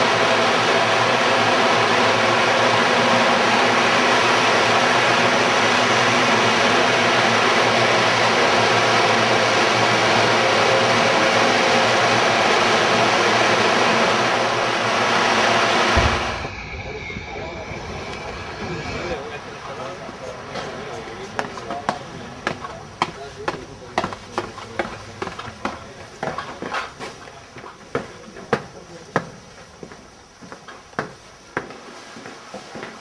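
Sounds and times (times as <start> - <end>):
steady rushing noise: 10.7 - 23.9.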